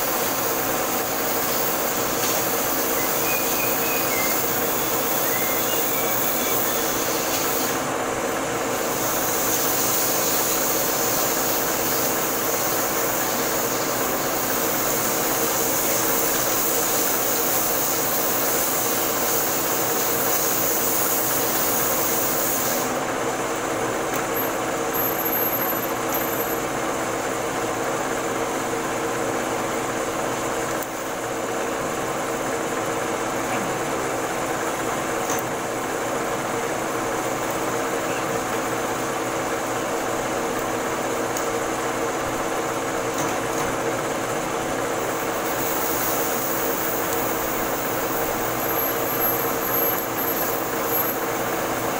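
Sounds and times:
high hiss: 0.0s - 7.8s, 8.8s - 23.0s, 45.1s - 51.9s.

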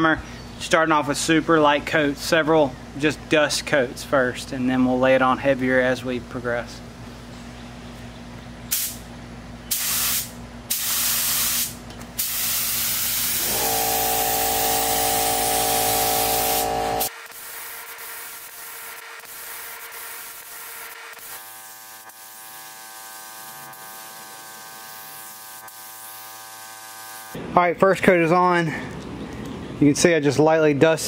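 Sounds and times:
paint spray gun hissing: 8.7s - 9.0s, 9.7s - 27.4s.

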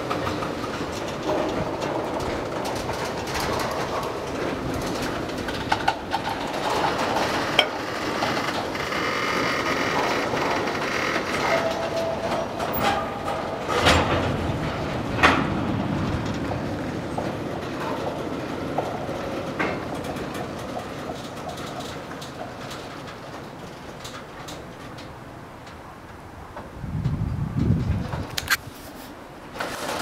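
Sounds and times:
train wheels rumbling on rail: 0.0s - 30.0s
metallic clanks: 4.8s - 8.8s.

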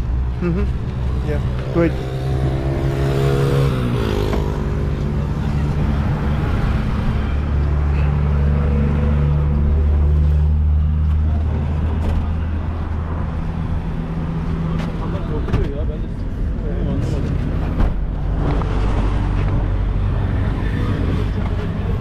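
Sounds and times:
passing vehicle engine: 0.0s - 15.2s.

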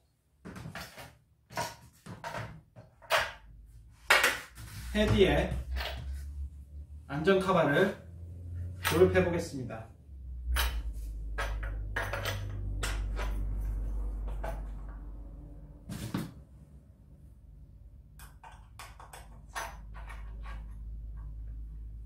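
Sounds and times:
low steady hum: 4.9s - 22.0s.

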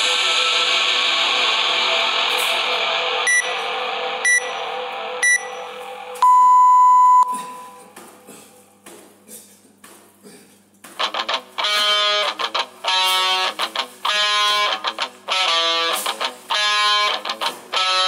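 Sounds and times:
long lower timer beep: 3.3s - 3.6s, 4.2s - 7.8s
short timer beeps: 3.3s - 3.6s, 4.2s - 4.6s, 5.2s - 5.6s, 6.2s - 7.8s.

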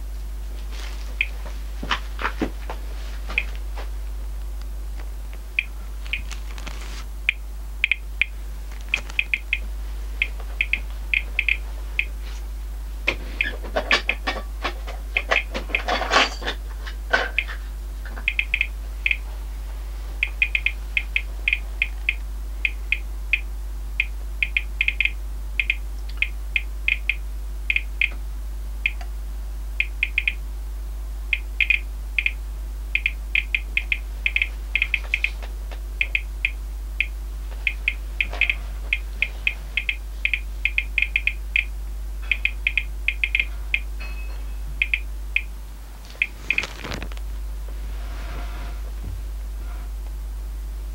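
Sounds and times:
plastic bag crinkling: 6.0s - 7.1s, 8.6s - 9.2s, 46.4s - 47.2s.

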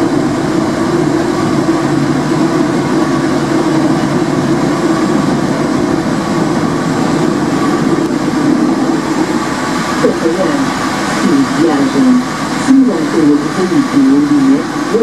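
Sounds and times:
tram wheels rumbling on rail: 0.0s - 15.0s.

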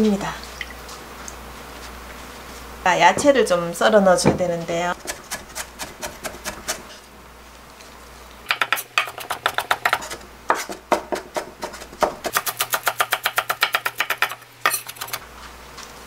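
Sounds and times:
knife mincing on wooden board: 5.0s - 7.0s, 8.5s - 15.2s.

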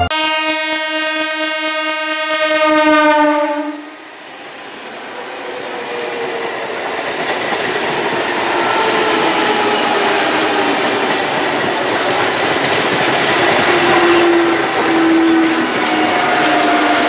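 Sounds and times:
train horn: 0.0s - 4.0s, 13.7s - 17.0s
train wheels on rails: 4.0s - 17.0s.

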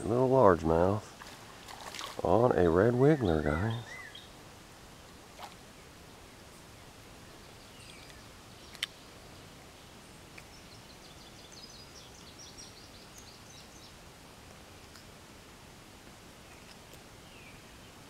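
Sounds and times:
faint outdoor background noise: 0.0s - 18.0s.

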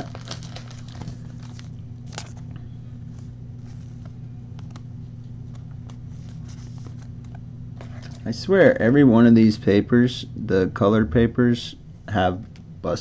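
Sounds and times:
trading cards rustling: 0.0s - 2.5s, 3.1s - 8.3s
low electrical hum: 0.0s - 13.0s.

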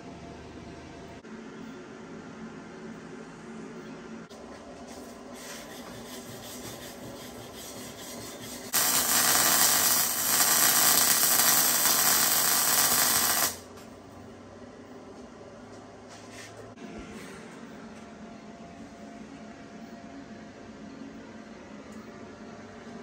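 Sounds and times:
arc welding hiss: 8.7s - 13.6s.

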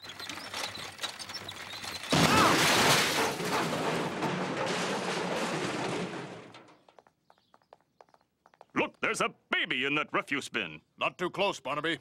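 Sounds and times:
garbage can rolling and rattling: 0.0s - 7.1s
metal garbage can crashing: 2.0s - 6.8s.

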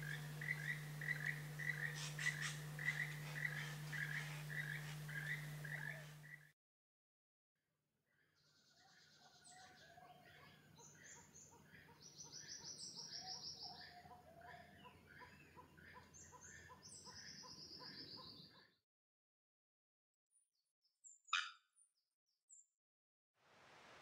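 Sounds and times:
birds calling: 0.0s - 6.4s.

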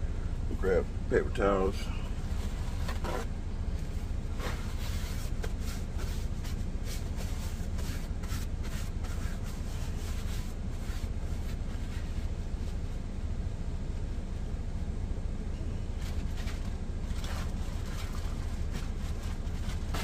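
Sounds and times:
paper towels rustling and crinkling: 4.0s - 12.8s, 16.0s - 20.0s.

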